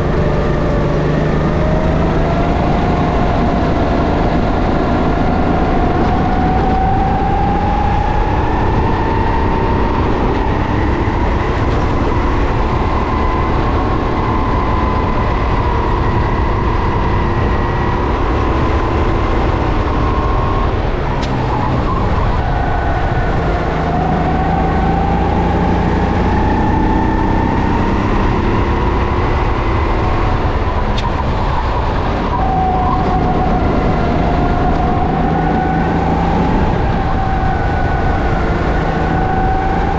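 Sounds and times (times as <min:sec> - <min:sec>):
kart engine at racing speed: 0:00.0 - 0:39.9.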